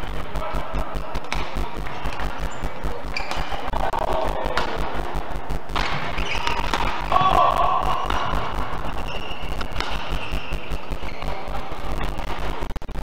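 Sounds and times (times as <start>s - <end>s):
background music with fast beat: 0.0s - 13.0s
rackets hitting shuttlecock: 0.7s - 2.3s, 3.2s - 3.7s, 4.5s - 4.9s, 5.7s - 11.4s
shoes squeaking on court: 1.2s - 3.7s, 5.8s - 7.2s, 8.0s - 11.5s.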